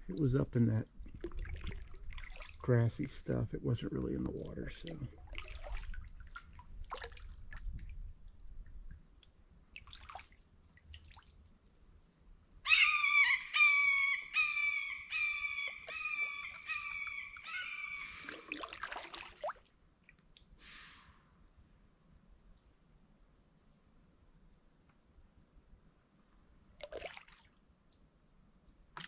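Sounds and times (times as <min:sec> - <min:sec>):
paddle drips and splashes: 0:00.8 - 0:03.3, 0:04.1 - 0:11.9, 0:15.5 - 0:21.6, 0:26.8 - 0:28.1.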